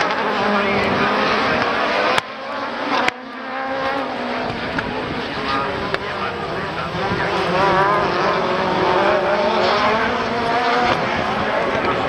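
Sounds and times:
rallycross cars engines revving: 0:00.0 - 0:12.0.

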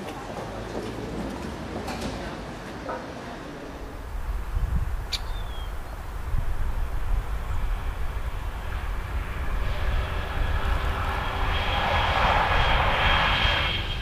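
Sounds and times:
train rushing noise: 0:03.6 - 0:14.0.

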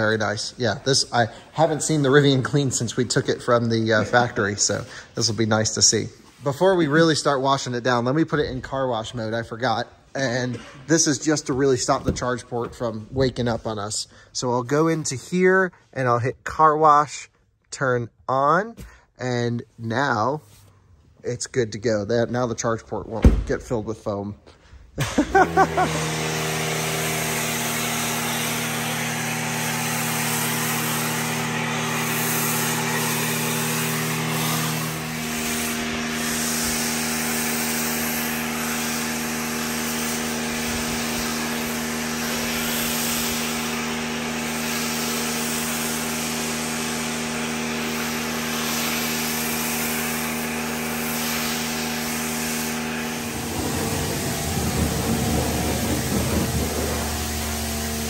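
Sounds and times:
pressure washer humming: 0:00.0 - 0:13.8, 0:25.0 - 0:58.0
foam cannon hissing: 0:25.0 - 0:58.0.

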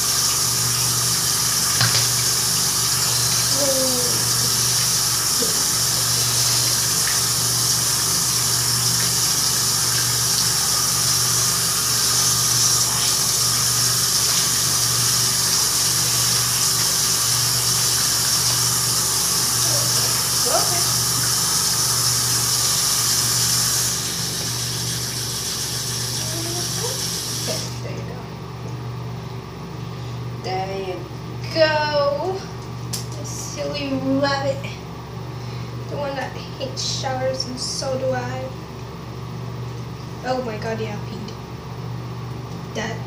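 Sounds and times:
tap water running into sink: 0:00.0 - 0:27.8.

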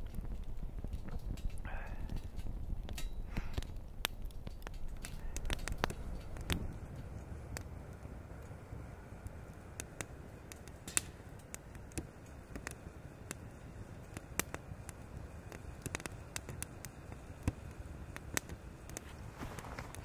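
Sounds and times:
twig fire crackling: 0:00.0 - 0:20.0.

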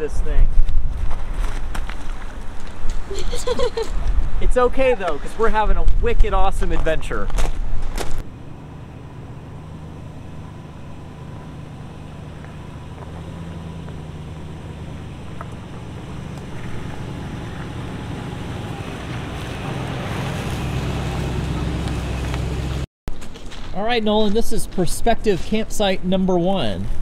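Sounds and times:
truck engine hum: 0:00.9 - 0:05.7, 0:07.6 - 0:22.9
tyres rolling over dirt and leaves: 0:11.9 - 0:24.4.

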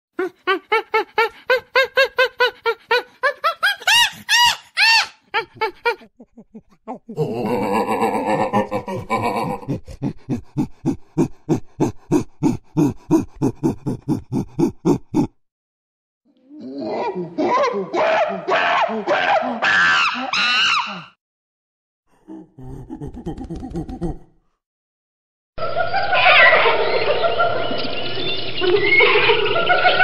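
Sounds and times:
chimpanzee panting calls: 0:00.2 - 0:07.2, 0:09.7 - 0:15.3
chimpanzee hoots and screams: 0:00.2 - 0:08.9, 0:16.6 - 0:21.1
harsh dense chimpanzee call: 0:03.9 - 0:08.7, 0:16.8 - 0:21.1.

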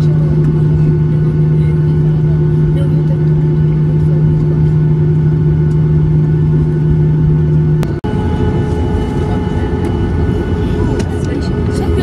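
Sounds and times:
jet cabin engine hum: 0:00.0 - 0:12.0.

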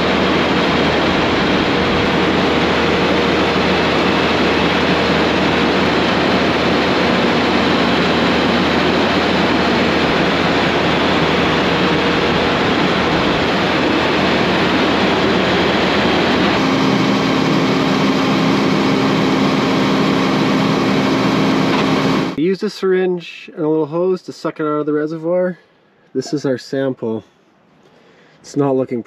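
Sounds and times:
tractor diesel engine running: 0:00.0 - 0:22.4.

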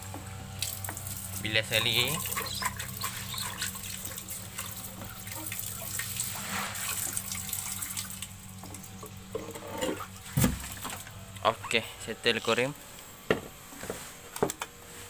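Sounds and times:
water pouring into aquarium: 0:00.6 - 0:08.4.

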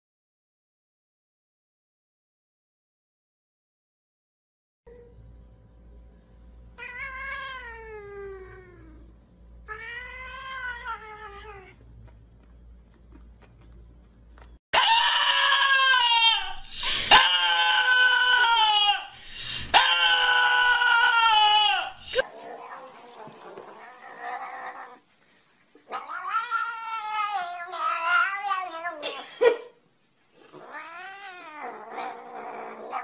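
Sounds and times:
cat meowing: 0:09.7 - 0:11.8, 0:25.9 - 0:29.0, 0:30.5 - 0:33.0
dog howling: 0:19.7 - 0:25.0.

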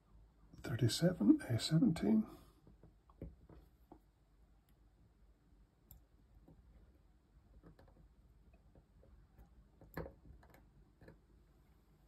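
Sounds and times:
small clicks of tweezers and wire: 0:05.8 - 0:06.1, 0:09.4 - 0:11.2.

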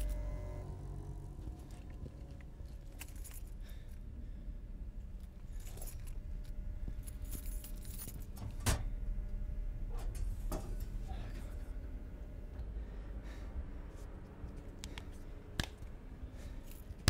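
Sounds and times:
low steady rumble: 0:00.0 - 0:17.0
keys jingling: 0:01.4 - 0:03.8, 0:05.2 - 0:06.2, 0:07.0 - 0:08.7.

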